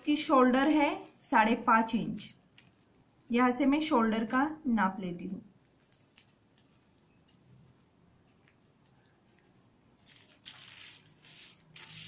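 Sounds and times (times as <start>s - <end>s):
newspaper rustling: 10.0s - 12.0s.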